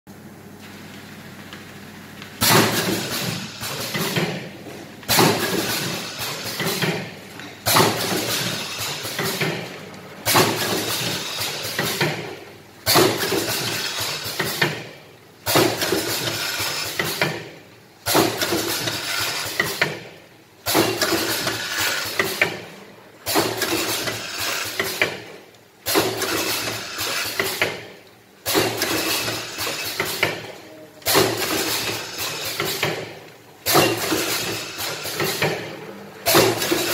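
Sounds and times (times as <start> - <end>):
loud machine clack: 2.4 - 4.4, 5.1 - 14.8, 23.2 - 25.2, 25.9 - 27.8, 28.4 - 36.9
mechanical clatter: 23.2 - 36.9.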